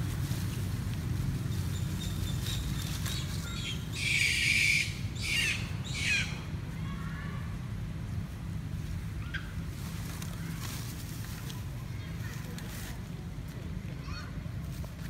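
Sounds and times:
steady low rumble: 0:00.0 - 0:04.0
monkeys screeching: 0:03.1 - 0:06.4.

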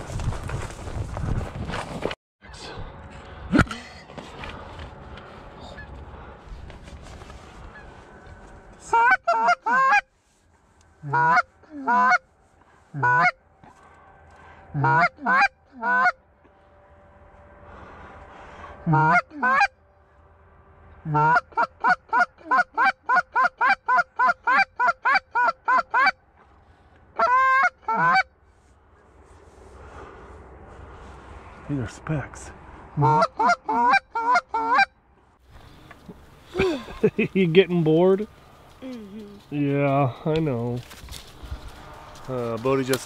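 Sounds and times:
goose call clucking and honking: 0:08.8 - 0:10.1, 0:11.0 - 0:12.3, 0:12.9 - 0:13.4, 0:14.7 - 0:16.2, 0:18.8 - 0:19.8, 0:21.0 - 0:26.2, 0:27.2 - 0:28.3, 0:33.0 - 0:35.0.

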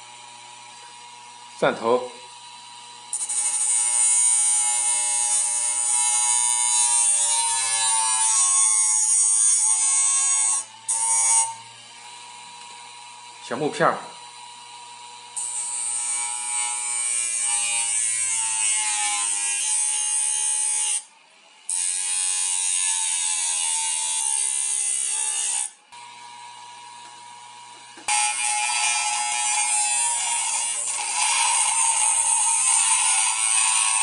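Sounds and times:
motor whine: 0:10.6 - 0:15.8, 0:25.9 - 0:28.1.

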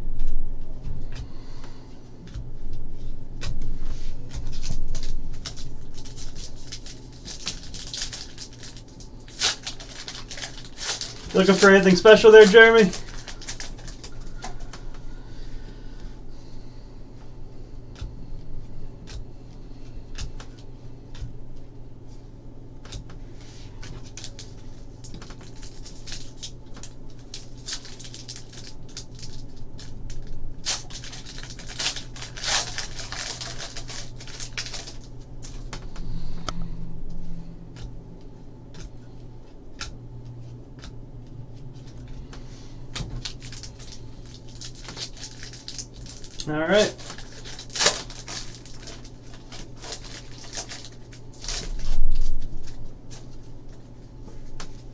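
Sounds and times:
foil pack crinkling and tearing: 0:04.2 - 0:14.8, 0:23.7 - 0:35.8, 0:43.0 - 0:53.8.

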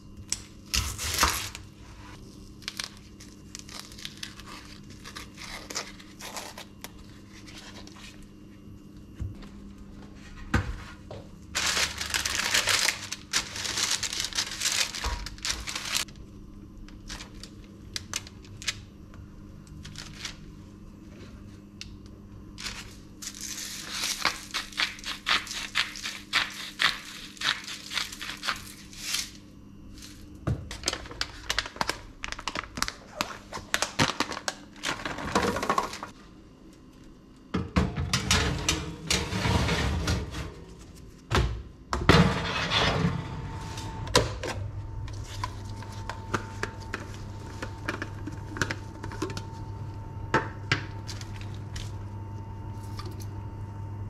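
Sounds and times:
parchment paper crinkling: 0:02.1 - 0:08.3, 0:11.6 - 0:16.1, 0:30.7 - 0:36.1
baking tray sliding into oven: 0:38.1 - 0:40.8, 0:42.1 - 0:44.4.

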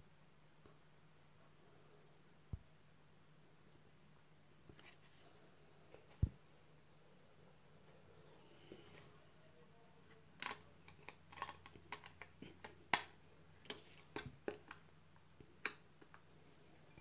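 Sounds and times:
plastic parts clicking: 0:10.4 - 0:14.8.

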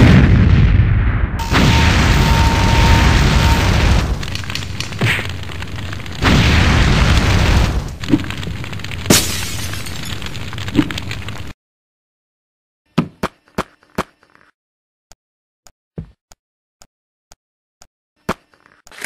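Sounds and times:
cartoon explosion booms: 0:00.0 - 0:04.4, 0:06.2 - 0:08.0
blasts and crashes: 0:00.0 - 0:10.7.

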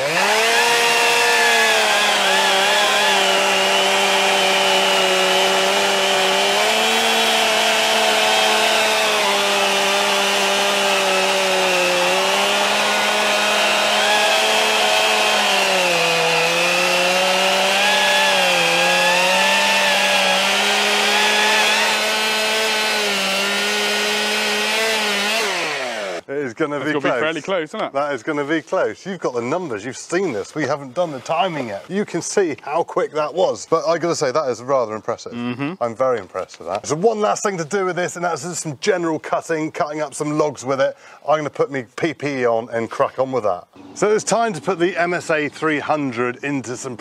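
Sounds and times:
chainsaws cutting a log: 0:00.0 - 0:26.3.

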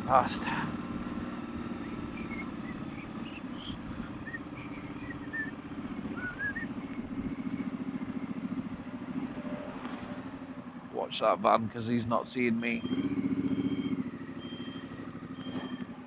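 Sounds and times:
motorcycle engine throbbing: 0:00.0 - 0:16.0
small birds chirping: 0:01.1 - 0:08.9, 0:12.3 - 0:16.0.

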